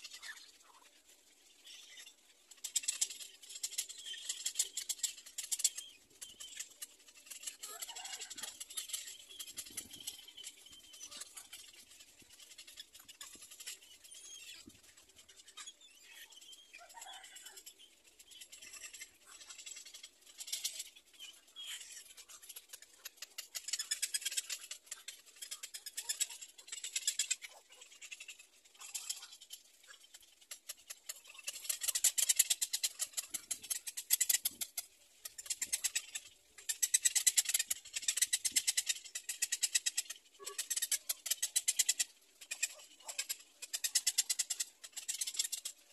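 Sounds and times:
heron chicks clicking chatter: 0:00.0 - 0:45.9.

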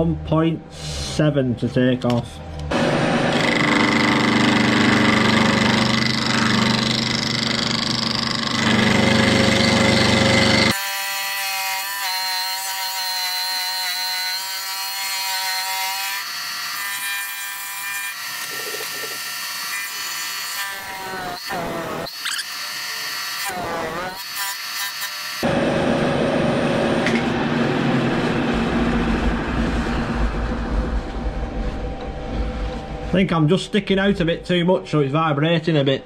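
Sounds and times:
milling machine whine: 0:02.6 - 0:10.8
milling machine cutting steel: 0:02.7 - 0:13.7.

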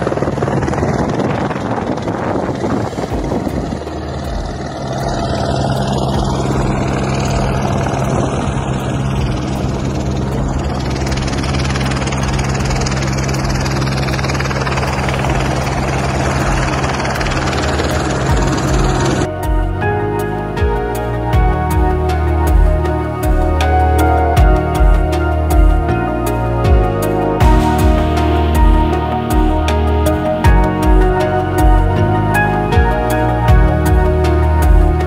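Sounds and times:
motor droning: 0:00.0 - 0:35.0
wind buffeting microphone: 0:00.0 - 0:35.0.

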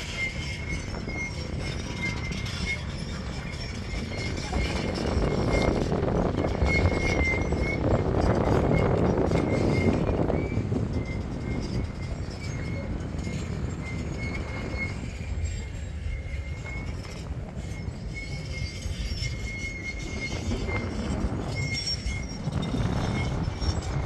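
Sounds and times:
wind rumbling on microphone: 0:00.0 - 0:24.0.

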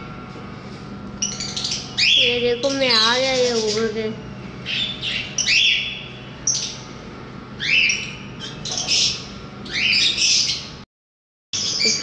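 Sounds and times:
parrots squawking: 0:01.2 - 0:03.9, 0:04.6 - 0:06.9, 0:07.6 - 0:10.8, 0:11.6 - 0:12.0.

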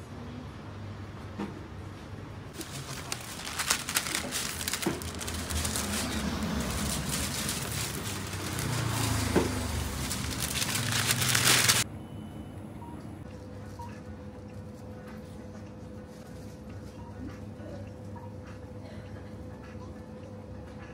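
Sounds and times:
packaging crinkling and rustling: 0:02.6 - 0:11.8.

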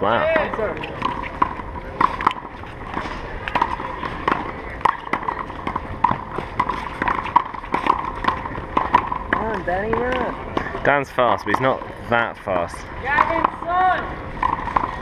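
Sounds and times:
ball bouncing on court: 0:00.3 - 0:11.9, 0:12.6 - 0:15.0
running footsteps: 0:00.4 - 0:12.0.

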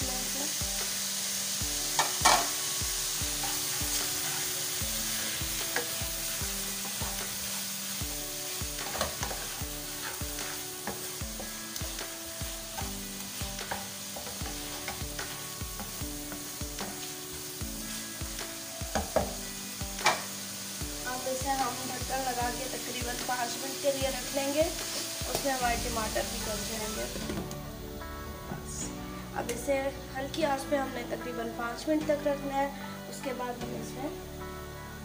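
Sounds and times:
food sizzling in hot oil: 0:00.0 - 0:35.0
spatula scraping and tapping pan: 0:08.7 - 0:11.9, 0:12.7 - 0:17.0, 0:20.0 - 0:20.3.

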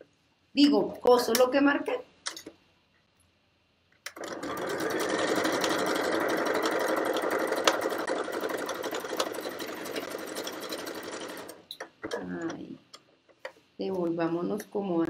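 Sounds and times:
electric sewing machine running: 0:04.1 - 0:11.7.

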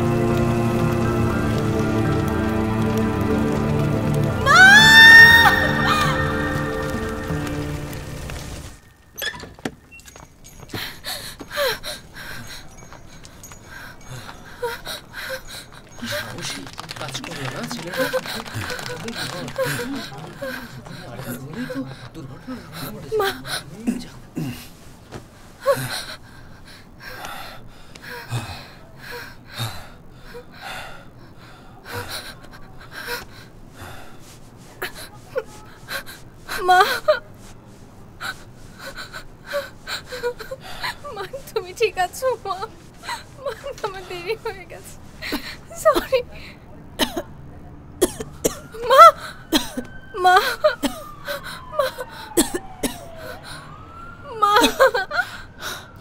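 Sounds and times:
woman gasping and sobbing: 0:04.4 - 0:07.3, 0:10.7 - 0:16.3, 0:18.0 - 0:24.8, 0:25.6 - 0:37.4, 0:38.2 - 0:47.2, 0:48.5 - 0:56.0
woman whimpering cries: 0:04.4 - 0:07.3, 0:10.8 - 0:12.9, 0:13.9 - 0:16.2, 0:34.8 - 0:37.3, 0:38.2 - 0:46.3, 0:48.7 - 0:55.9
gasping breaths: 0:10.7 - 0:16.8, 0:25.6 - 0:37.0.

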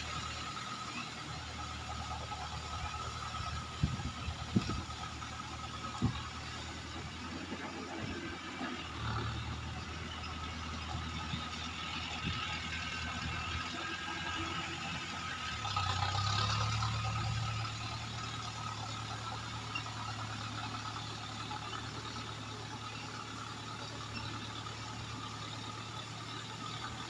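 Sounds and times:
tractor diesel engine under load: 0:00.0 - 0:27.0.

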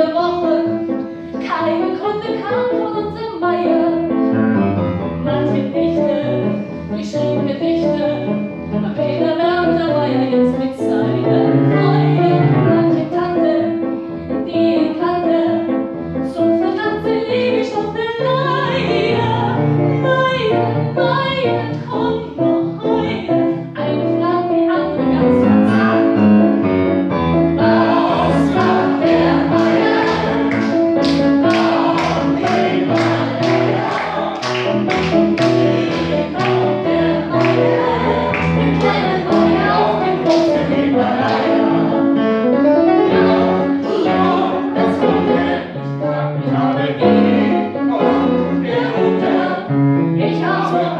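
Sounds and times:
piano accompaniment: 0:00.0 - 0:50.9
woman singing: 0:01.4 - 0:04.0, 0:07.0 - 0:13.8, 0:14.4 - 0:15.7, 0:16.3 - 0:26.1, 0:36.4 - 0:41.2, 0:50.2 - 0:50.9
sharp rhythmic beat: 0:27.7 - 0:39.7.

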